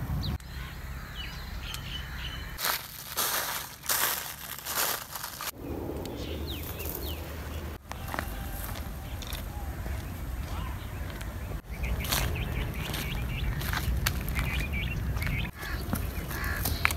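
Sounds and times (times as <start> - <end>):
birds chirping: 0.0 - 16.9
footsteps crunching dry leaves: 2.5 - 5.6, 7.8 - 16.9.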